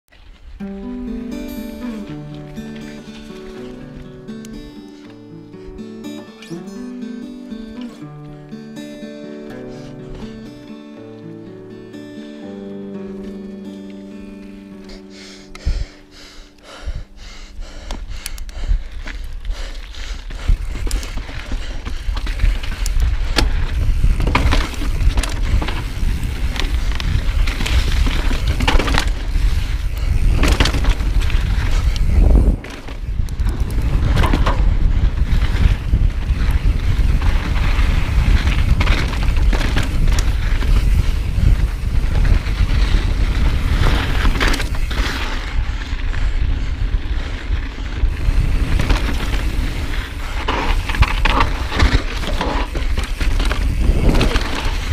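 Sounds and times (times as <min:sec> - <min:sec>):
bike tyres rolling: 0:00.1 - 0:05.3, 0:13.4 - 0:54.9
wind buffeting microphone: 0:16.8 - 0:54.9
bike knocks and rattles: 0:20.7 - 0:35.8, 0:36.4 - 0:43.0, 0:48.3 - 0:54.9.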